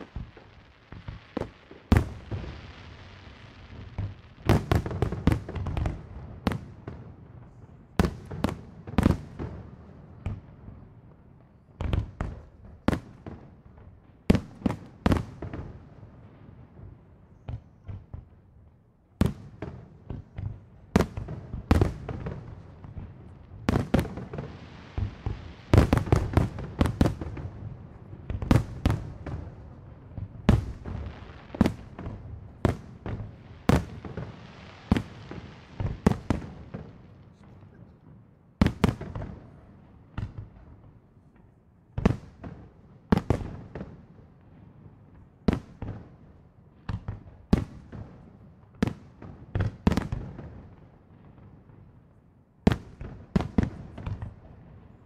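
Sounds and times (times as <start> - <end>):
small fireworks pops: 0.0 - 9.6, 10.2 - 15.8, 17.3 - 18.5, 19.2 - 44.0, 52.7 - 55.0
fireworks bursting with booms: 0.0 - 18.5, 19.1 - 52.0, 52.6 - 55.0.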